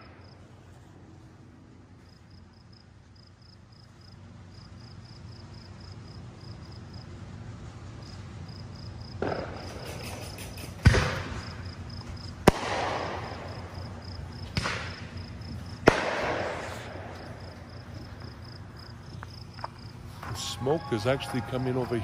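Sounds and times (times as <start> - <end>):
fireworks booming and crackling: 9.1 - 19.2.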